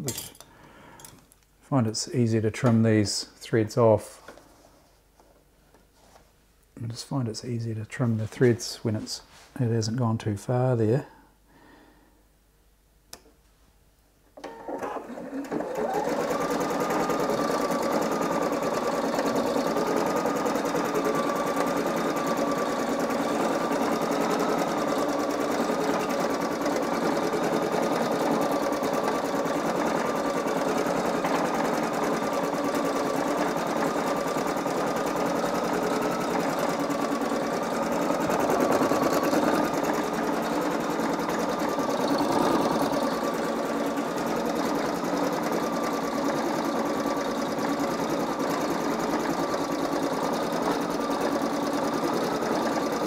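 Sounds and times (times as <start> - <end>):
embroidery machine stitching: 14.4 - 53.0.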